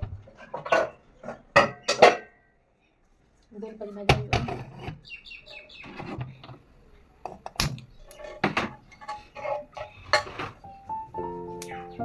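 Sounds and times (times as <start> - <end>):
metal utensils scraping a pan: 0.3 - 2.3, 5.8 - 6.5, 8.0 - 10.8.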